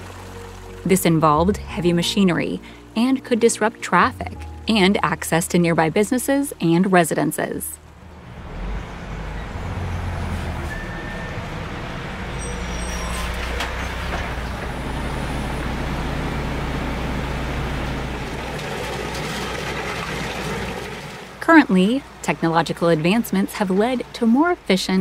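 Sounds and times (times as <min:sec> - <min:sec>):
constant noisy hiss: 0:00.0 - 0:08.4
truck engine humming: 0:00.0 - 0:25.0.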